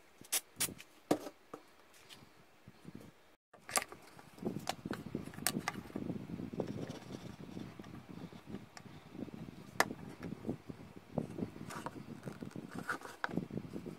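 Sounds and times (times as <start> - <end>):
rustling and scraping: 6.6 - 8.5, 11.2 - 13.9.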